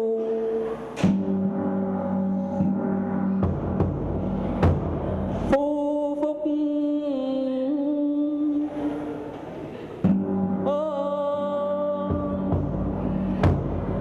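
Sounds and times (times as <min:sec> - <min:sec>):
percussion stroke: 0:00.2 - 0:05.6.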